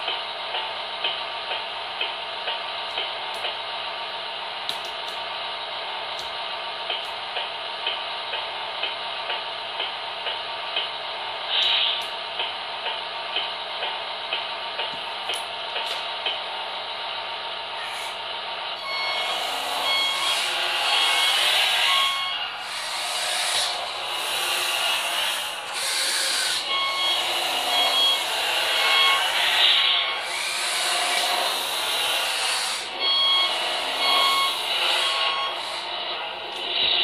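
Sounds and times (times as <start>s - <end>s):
reversing alarm beeps: 18.8s - 22.5s, 26.5s - 30.2s, 33.0s - 35.6s
simulated engine through small speaker: 19.8s - 37.0s.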